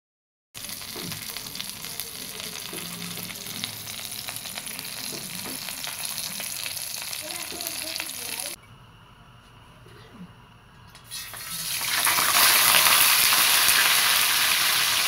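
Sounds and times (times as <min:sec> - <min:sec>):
fish sizzling in oil: 0:00.6 - 0:08.6, 0:11.1 - 0:15.0.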